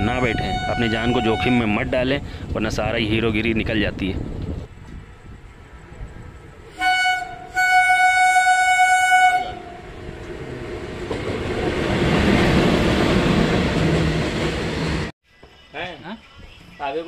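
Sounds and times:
locomotive horn blasts: 0.0s - 2.1s, 6.7s - 10.0s
freight train rumble: 0.0s - 15.1s.

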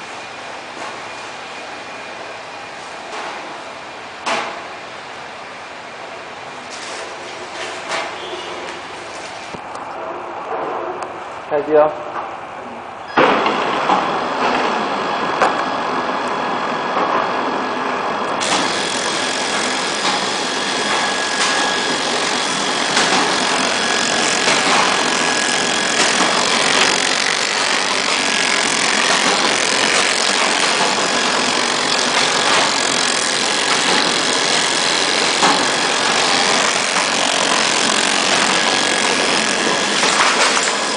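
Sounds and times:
packing machine whirring: 13.1s - 40.9s.

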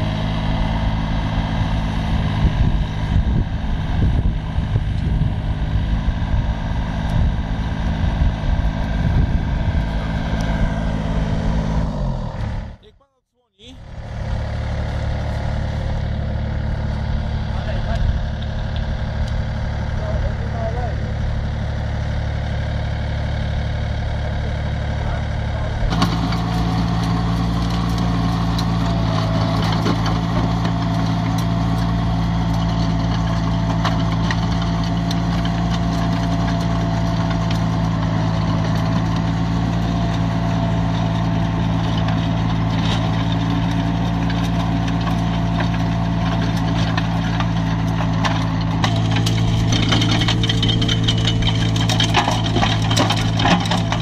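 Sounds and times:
loader engine running: 0.0s - 54.0s
soil harrow clicks and rattles: 25.9s - 54.0s.

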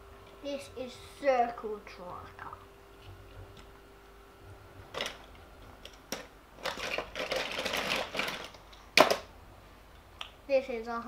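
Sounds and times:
toy cars clattering: 6.1s - 9.3s.

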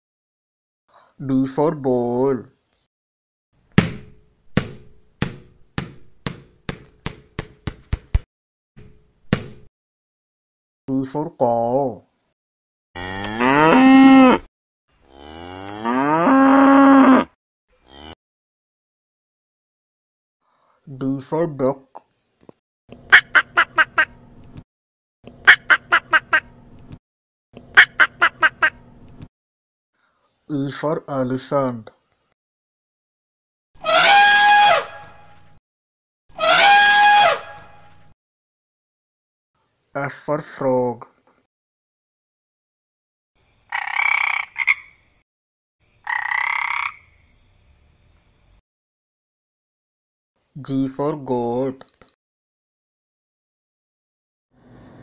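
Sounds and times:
ball bouncing with ring: 3.8s - 7.9s, 8.8s - 9.7s
duck quacking: 23.1s - 24.2s, 25.5s - 26.5s, 27.7s - 28.8s.

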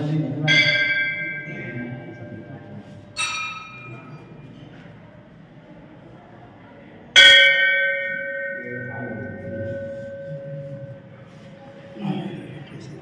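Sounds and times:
metal bell ringing: 0.5s - 4.3s.

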